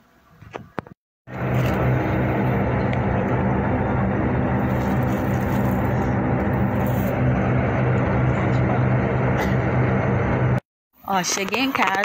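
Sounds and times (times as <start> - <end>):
bus engine hum: 1.3 - 10.6
road noise: 1.3 - 11.6.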